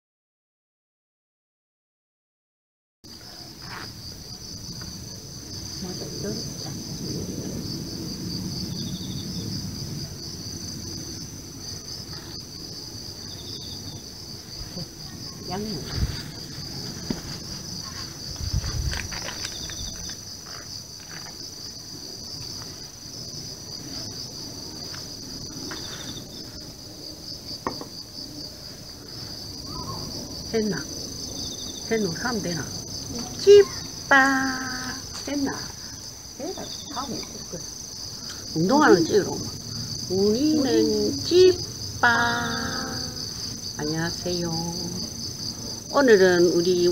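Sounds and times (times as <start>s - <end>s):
insect chorus buzzing: 3.1s - 46.9s.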